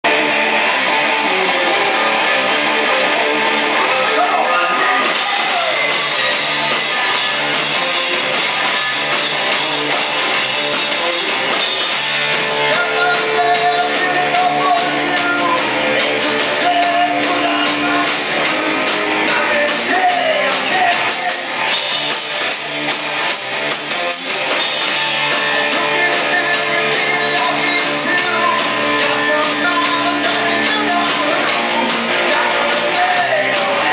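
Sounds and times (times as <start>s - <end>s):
drum kit: 0.0s - 33.9s
electric guitar: 0.0s - 33.9s
man singing into microphone: 12.7s - 21.7s, 25.6s - 33.9s.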